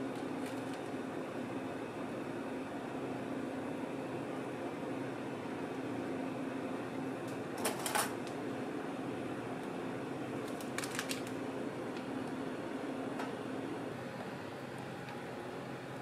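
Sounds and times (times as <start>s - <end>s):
steady machine hum: 0.0s - 16.0s
paper wrapper crackling: 10.4s - 11.4s.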